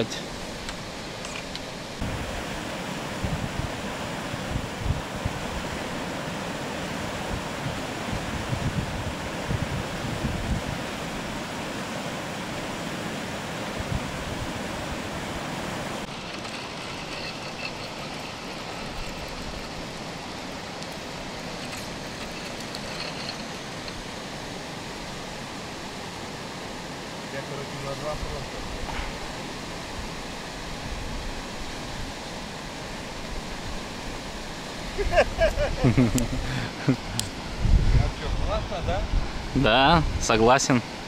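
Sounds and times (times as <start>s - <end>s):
moving water: 0.0s - 41.0s
wind buffeting microphone: 2.0s - 11.8s, 13.7s - 25.2s, 33.1s - 40.3s
wind rushing: 7.0s - 11.7s, 34.9s - 40.3s.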